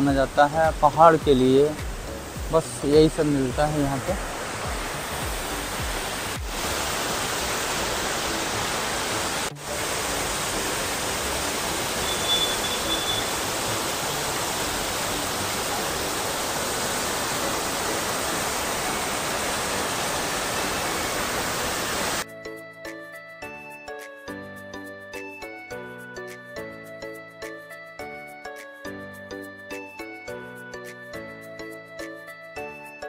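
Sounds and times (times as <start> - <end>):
waterfall rushing: 0.0 - 22.2
music: 0.0 - 33.0.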